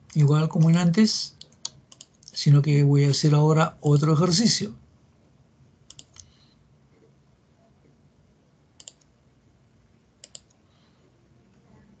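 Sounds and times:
computer mouse clicks: 0:00.6 - 0:02.4, 0:05.9 - 0:06.4, 0:08.8 - 0:09.1, 0:10.2 - 0:10.6.

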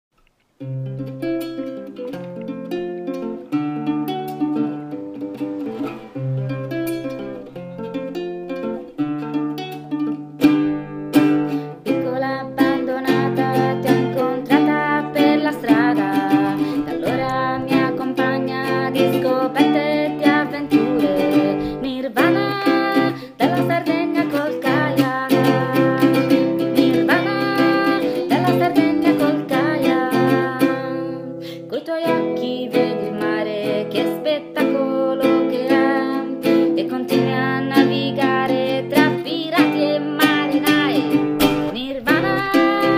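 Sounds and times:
acoustic guitar: 0:00.2 - 0:42.9
woman singing: 0:11.2 - 0:42.9.

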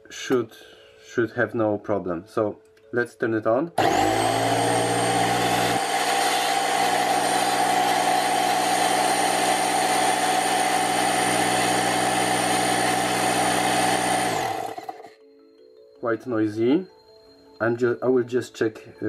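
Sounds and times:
air compressor running: 0:03.8 - 0:15.1.

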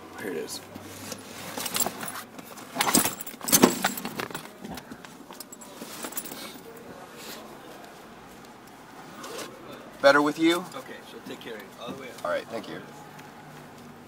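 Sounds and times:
hands rummaging in a backpack: 0:01.0 - 0:06.7
hard objects rattling and clinking: 0:01.5 - 0:06.6.

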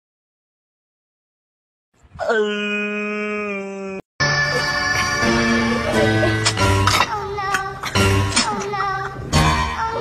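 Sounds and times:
person's long wailing cry: 0:02.2 - 0:04.8.

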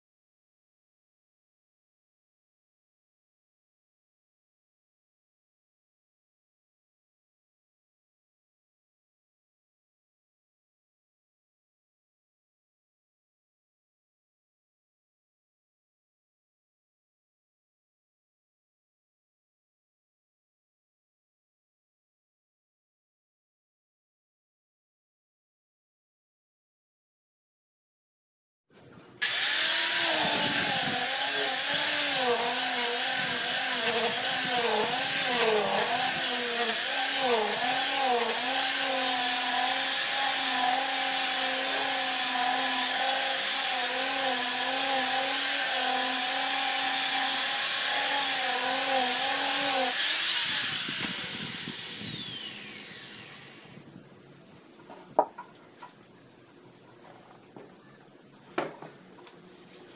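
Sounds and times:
electric palm sander on wood: 0:29.2 - 0:53.7.

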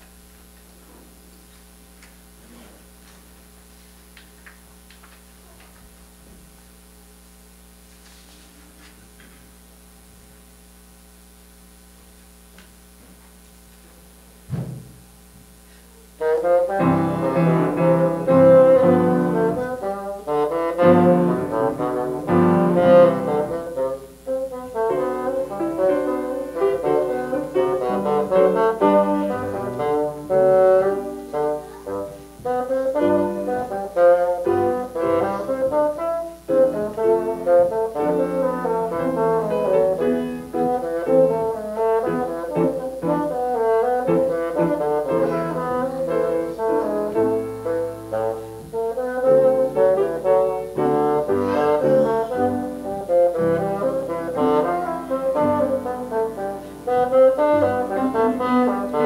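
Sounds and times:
bassoon and piano playing: 0:16.2 - 0:59.0.

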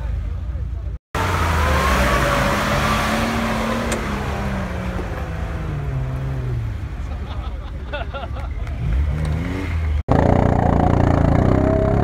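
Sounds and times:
vehicle engine working under load: 0:00.0 - 0:12.0.

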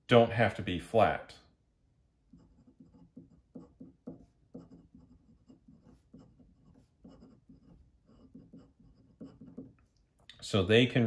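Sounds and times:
pen scratching on paper: 0:02.3 - 0:09.9.

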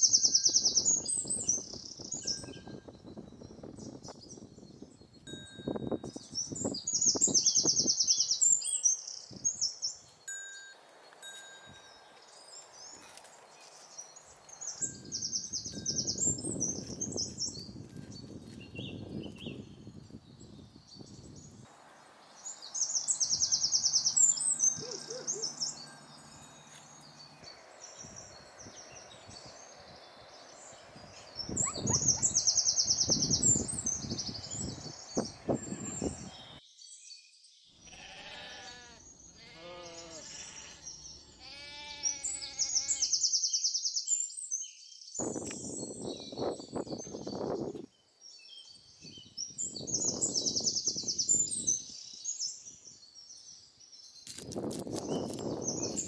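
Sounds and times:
songbird trilling: 0:22.3 - 0:36.6
goat bleating: 0:35.3 - 0:36.3, 0:37.9 - 0:43.1.

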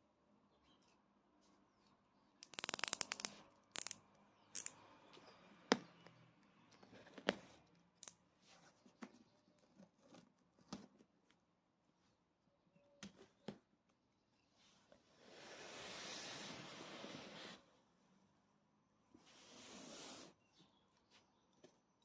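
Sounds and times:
utility knife cutting tape: 0:02.4 - 0:04.0.

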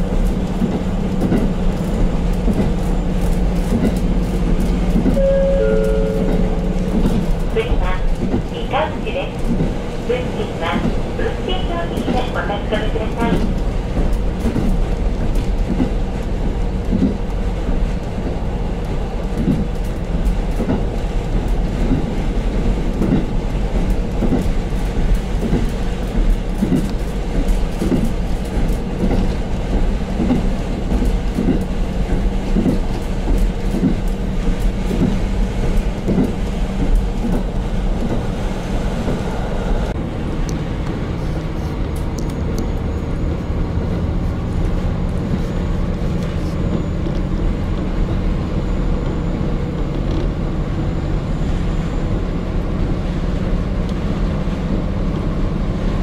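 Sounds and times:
diesel railcar drone: 0:00.0 - 0:56.0
wheels thumping over rail joints: 0:19.2 - 0:39.4.

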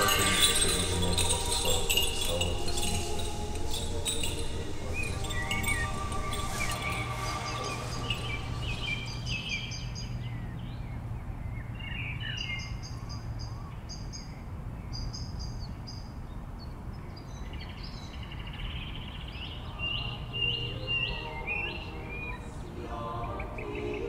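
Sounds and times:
songbirds chirping: 0:00.0 - 0:24.0.

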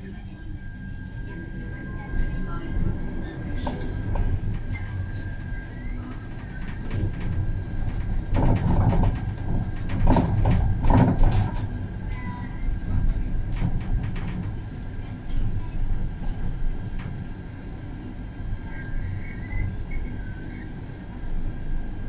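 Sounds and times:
faint high whine: 0:00.0 - 0:07.7, 0:18.0 - 0:22.0
tram rumbling on rails: 0:00.0 - 0:22.0
wheels rattling over track junctions: 0:01.4 - 0:22.0.

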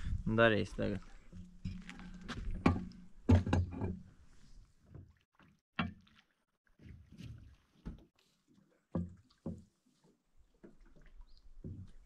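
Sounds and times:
sharp knocks and thuds: 0:01.7 - 0:04.0, 0:09.0 - 0:09.7.

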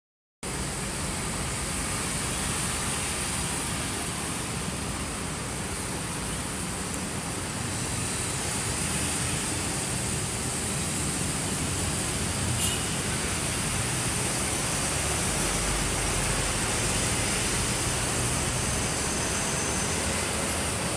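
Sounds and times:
cars passing: 0:00.9 - 0:20.9
motorbikes passing: 0:07.2 - 0:20.9.

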